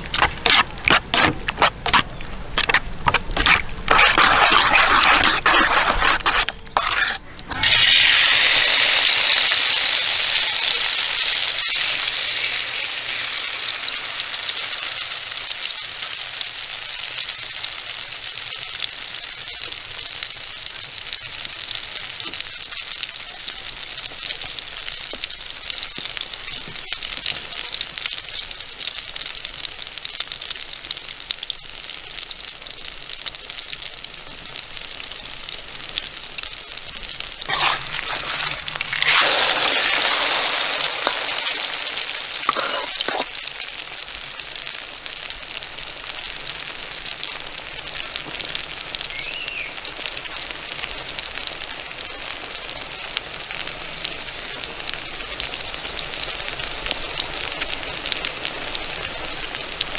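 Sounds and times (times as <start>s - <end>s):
oil popping: 0.0s - 8.5s, 37.4s - 43.5s
egg and vegetables sizzling in oil: 0.0s - 59.9s.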